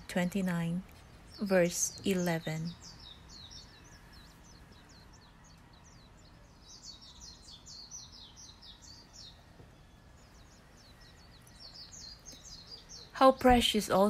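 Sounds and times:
faint bird chirping: 0.0s - 14.0s.

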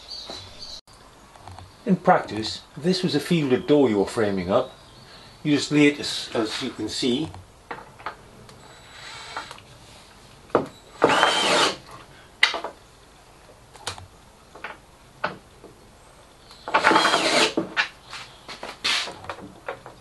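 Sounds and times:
electric screwdriver whirring: 11.0s - 11.8s.

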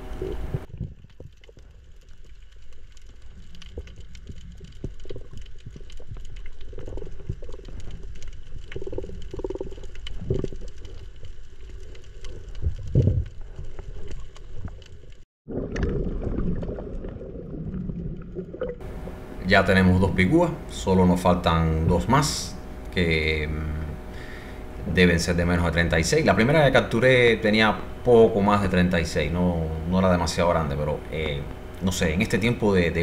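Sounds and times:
faint underwater clicks crackling: 0.0s - 15.2s
underwater rumble of moving water: 0.0s - 33.0s
water gurgling: 0.0s - 33.0s.

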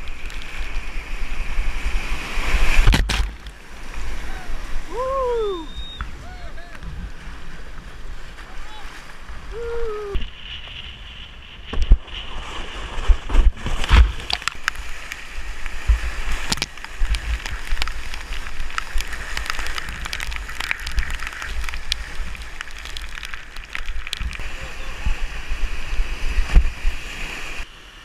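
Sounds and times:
paddle strokes splashing: 5.8s - 27.7s
whitewater rapids rushing: 14.4s - 27.7s.

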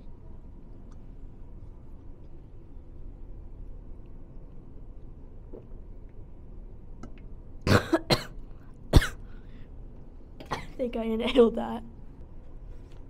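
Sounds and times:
woman coughing hard: 7.7s - 9.2s, 10.4s - 10.8s.

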